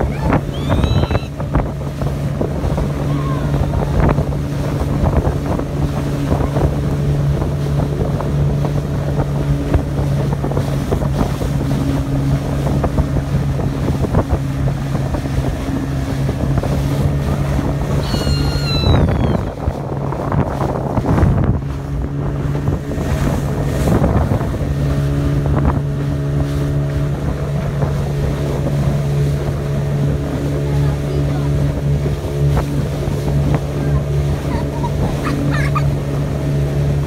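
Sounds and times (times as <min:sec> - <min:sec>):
boat engine drone: 0:00.0 - 0:37.0
water spray along hull: 0:00.0 - 0:37.0
wind on microphone: 0:00.0 - 0:37.0.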